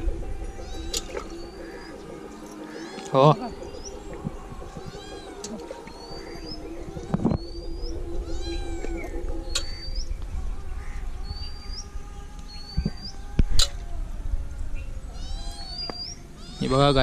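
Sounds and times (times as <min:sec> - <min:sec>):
cat meowing: 0:04.8 - 0:05.6, 0:08.2 - 0:09.1, 0:15.1 - 0:17.0
bird whistling: 0:04.8 - 0:10.2.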